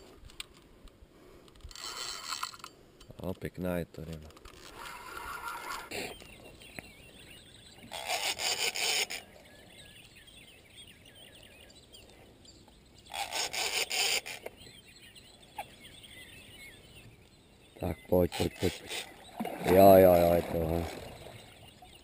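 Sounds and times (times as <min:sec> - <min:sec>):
birds chirping: 0:01.3 - 0:22.0
fishing reel drag buzzing: 0:01.7 - 0:02.7, 0:04.7 - 0:05.9, 0:07.9 - 0:09.3, 0:13.1 - 0:14.5.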